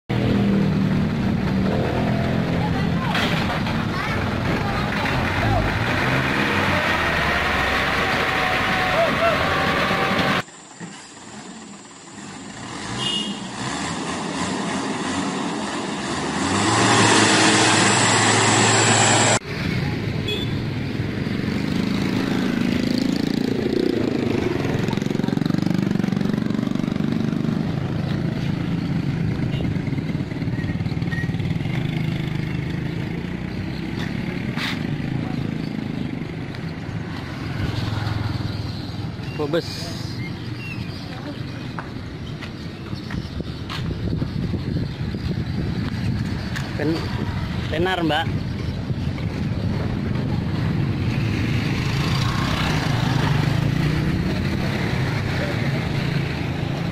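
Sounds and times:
road traffic rumble: 0.1 - 56.9
building noise: 14.4 - 19.8.

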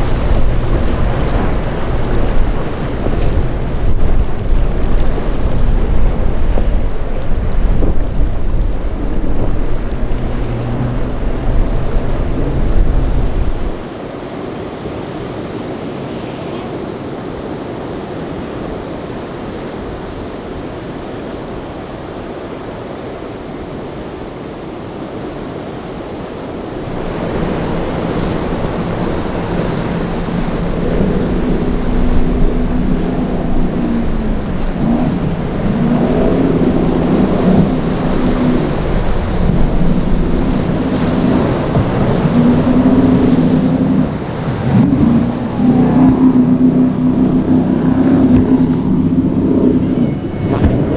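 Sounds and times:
outboard motor running: 0.0 - 13.8, 26.9 - 50.9
powerboat engines: 0.0 - 50.9
surf: 0.0 - 50.9
wind: 0.0 - 50.9.

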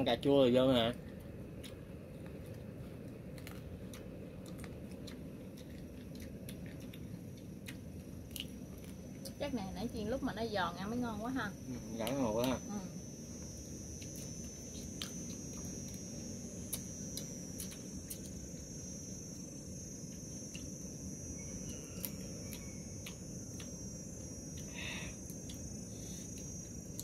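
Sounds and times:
crickets chirring: 0.0 - 27.0
low background hum: 0.0 - 27.0
crunching of people eating: 0.2 - 9.5, 11.6 - 27.0.

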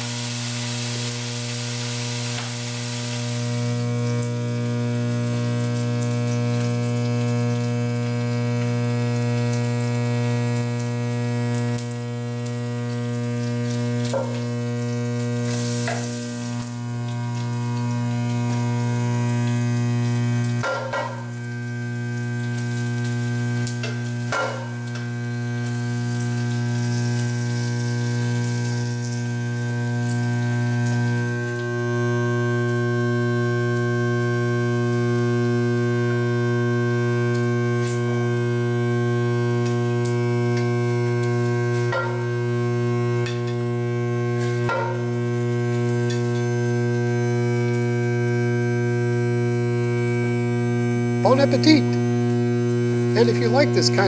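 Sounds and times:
bacon and egg sizzling: 0.0 - 54.0
electrical hum: 0.0 - 54.0
spatula knocking on pan: 20.6 - 21.3, 24.3 - 24.7.

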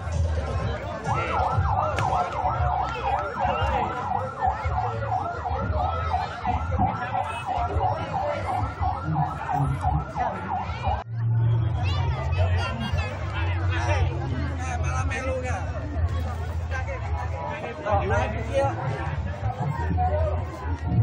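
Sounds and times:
electronic siren yelping: 1.0 - 11.0.

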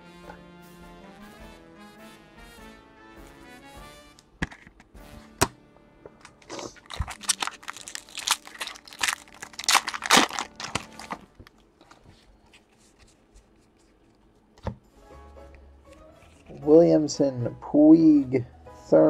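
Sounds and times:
foil wrapper tearing and crinkling: 6.4 - 11.4.

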